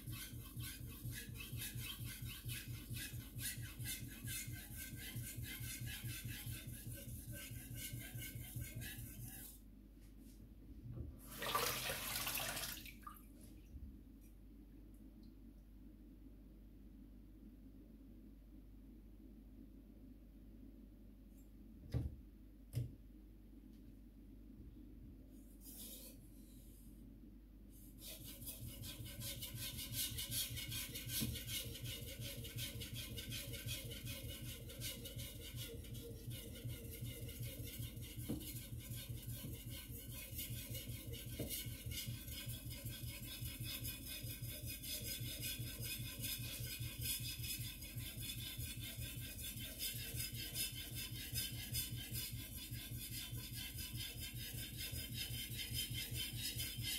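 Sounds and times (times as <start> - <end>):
knife scraping on whetstone: 0.0 - 9.6, 28.0 - 56.9.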